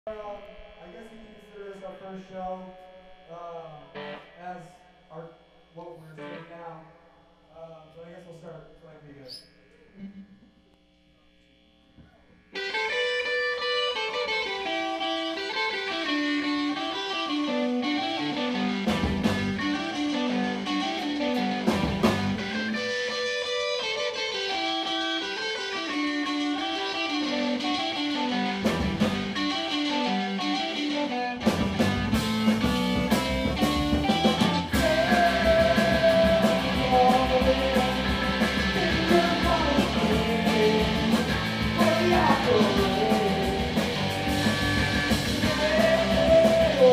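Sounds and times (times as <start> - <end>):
electric guitar melodic line: 2.8 - 4.4, 6.2 - 6.5, 12.6 - 46.9
bass: 11.1 - 46.9.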